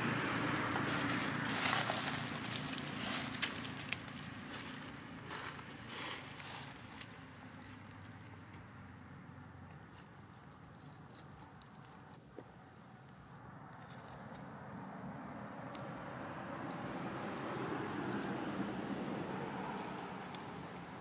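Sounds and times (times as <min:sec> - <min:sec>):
dry leaves crackling: 0:00.0 - 0:08.6.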